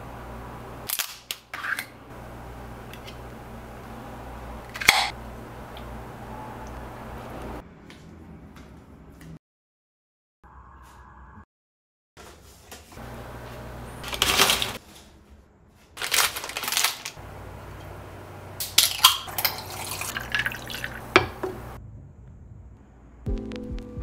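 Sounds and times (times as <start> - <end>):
soda poured over ice: 18.9 - 21.2
dishes clattering: 18.9 - 21.7.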